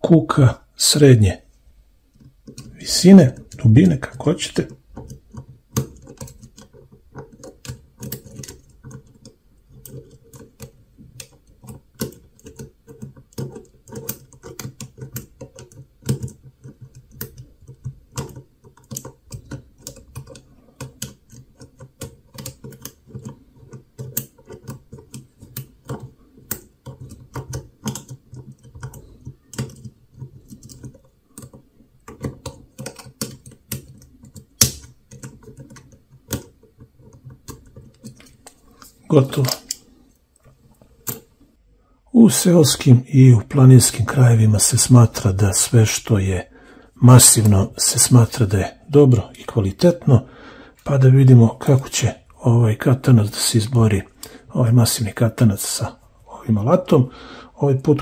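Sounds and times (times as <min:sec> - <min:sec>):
lock pick clicking and scraping: 0:02.1 - 0:02.8, 0:04.7 - 0:40.0, 0:40.9 - 0:41.4.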